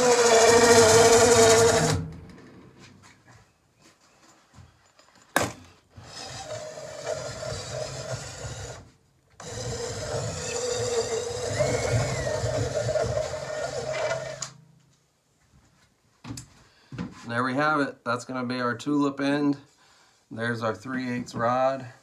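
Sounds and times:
wood rubbing in die: 0.0s - 2.0s, 6.0s - 14.5s
cordless drill running: 0.0s - 2.1s, 6.0s - 8.8s, 9.4s - 14.6s.

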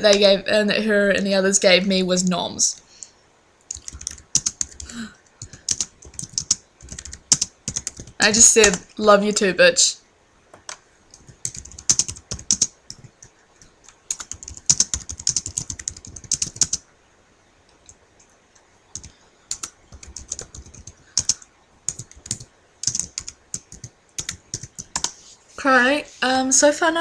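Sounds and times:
typing on computer keyboard: 3.7s - 8.8s, 10.6s - 16.8s, 18.9s - 25.2s.

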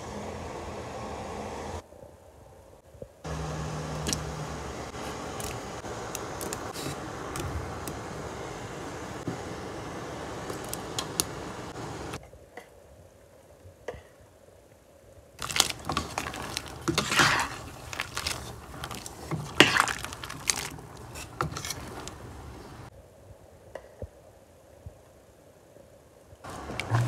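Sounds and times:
steady hiss: 3.3s - 13.2s
utensil clicking and scraping: 15.4s - 22.2s.

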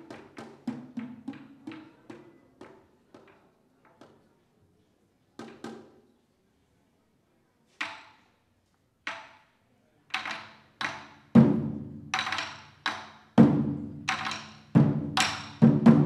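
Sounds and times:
barrel drums struck with sticks: 10.2s - 16.0s.

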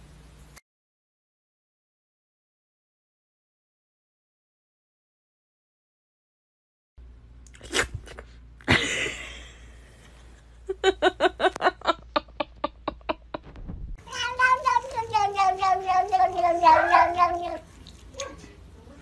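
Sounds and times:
cat chirping: 14.0s - 18.4s
cat meowing: 14.0s - 18.4s.

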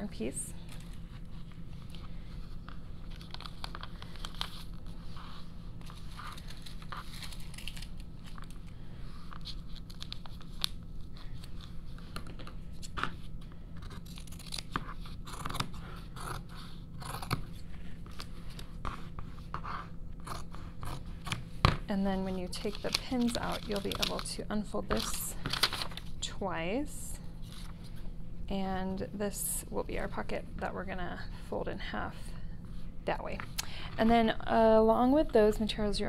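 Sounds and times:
paper and fabric rustling: 22.3s - 26.1s.

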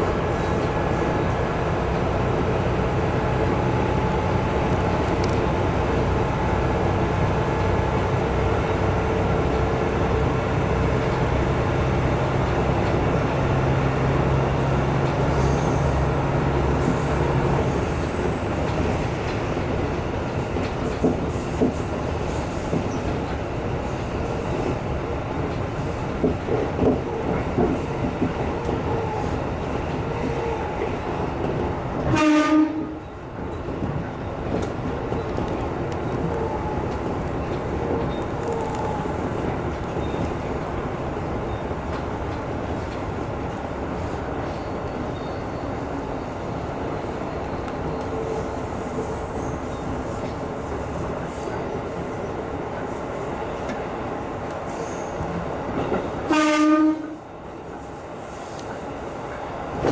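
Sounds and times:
train wheels on track: 0.0s - 59.9s
clacks over rail joints: 18.2s - 23.5s, 25.3s - 40.6s.

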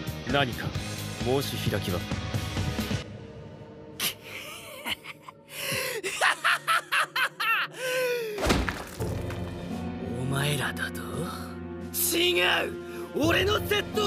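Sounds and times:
faint background music: 0.0s - 14.0s
man laughing: 4.0s - 8.3s.

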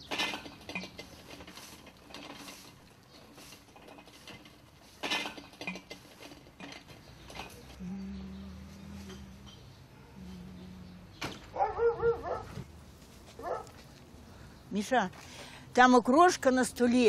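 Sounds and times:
metal trolley rattling over asphalt: 0.0s - 7.8s
steady low hum: 7.0s - 14.8s.

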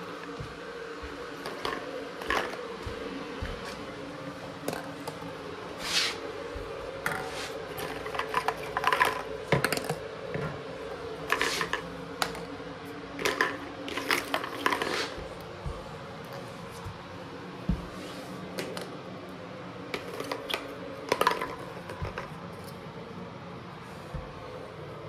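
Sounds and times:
footsteps: 0.0s - 8.1s, 14.4s - 18.5s
steady low hum: 0.0s - 25.0s
plastic eggs clattering on floor: 1.4s - 2.7s, 7.0s - 10.1s, 11.2s - 12.6s, 13.2s - 15.2s, 20.0s - 22.6s.

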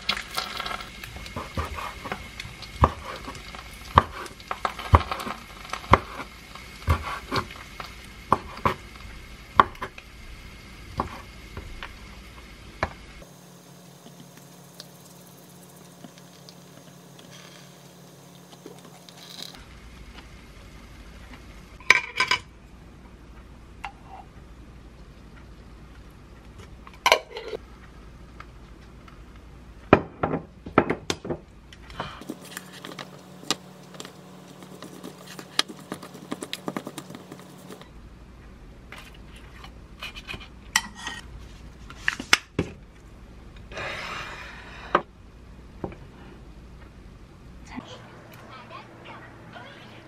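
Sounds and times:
plates knocked on a counter: 29.9s - 31.4s
spoon scraping a wooden bowl: 34.4s - 37.8s.

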